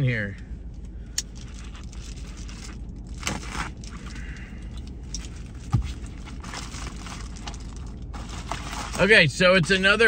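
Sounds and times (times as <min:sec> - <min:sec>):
package scraping and rustling: 0:01.4 - 0:04.2, 0:05.2 - 0:09.8
dull thump: 0:05.6 - 0:06.0.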